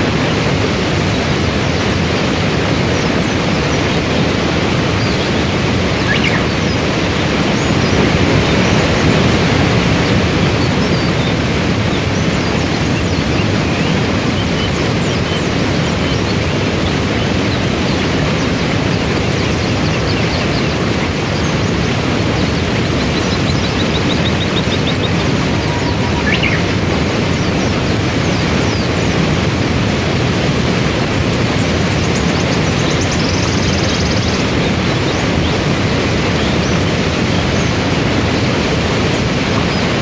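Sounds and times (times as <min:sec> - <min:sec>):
waterfall and rapids rushing: 0:00.0 - 0:40.0.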